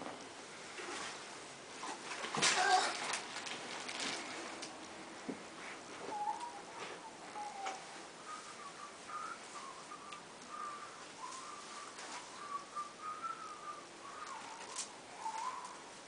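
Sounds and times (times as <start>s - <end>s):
person whistling a tune: 6.1s - 15.8s.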